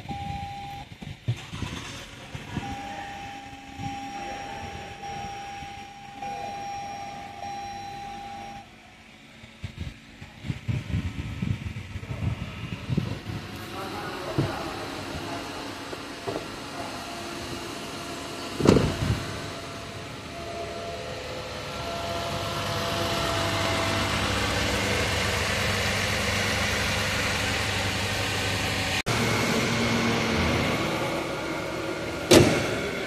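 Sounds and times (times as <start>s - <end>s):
car engine idling: 0.0s - 33.0s
thump: 18.6s - 19.0s, 32.3s - 32.8s.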